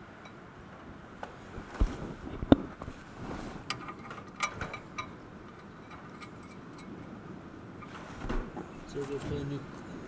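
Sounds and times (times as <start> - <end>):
light metallic clinks and taps: 3.7 - 7.0.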